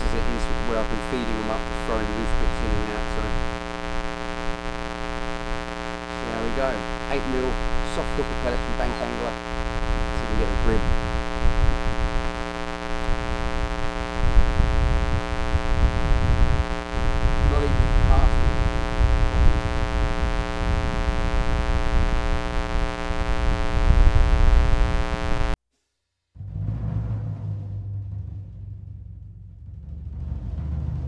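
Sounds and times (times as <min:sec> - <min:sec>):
electrical buzz: 0:00.0 - 0:25.6
wind rumble on microphone: 0:09.6 - 0:25.5.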